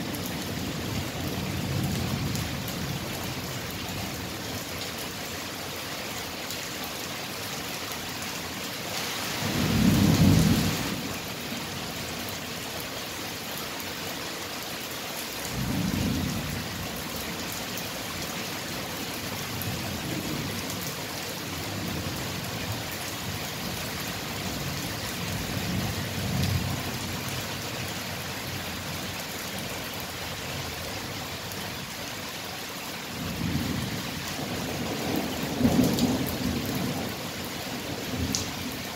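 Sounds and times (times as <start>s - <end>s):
steady rain: 0.0s - 38.9s.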